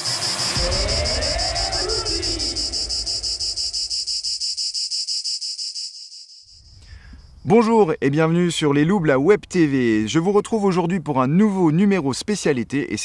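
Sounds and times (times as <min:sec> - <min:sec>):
whooshing transition effect: 0:00.0 - 0:04.4
insects trilling: 0:00.0 - 0:08.6.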